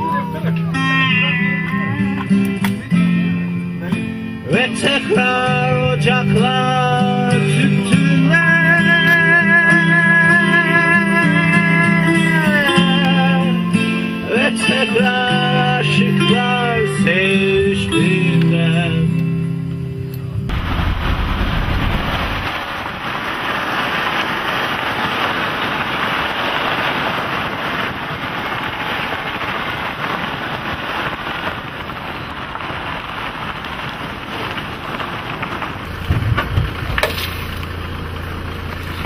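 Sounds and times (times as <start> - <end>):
sharp cracks: 1.6 - 3.0, 6.4 - 16.6, 20.1 - 39.0
vehicle driving on dirt track: 31.8 - 39.0
vehicle engine idling: 35.0 - 39.0.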